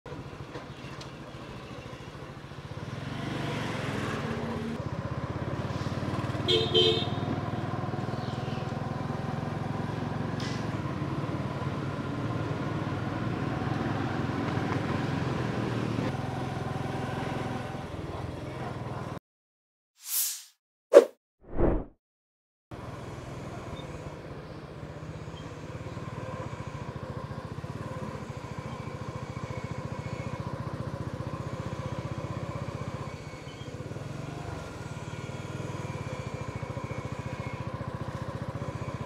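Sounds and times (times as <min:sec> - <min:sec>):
vehicle horn tooting: 0:06.5 - 0:07.3.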